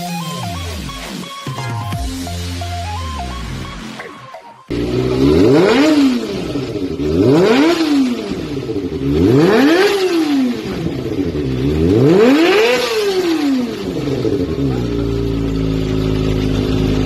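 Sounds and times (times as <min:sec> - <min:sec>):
motorcycle engine revving: 0:04.7 - 0:17.0.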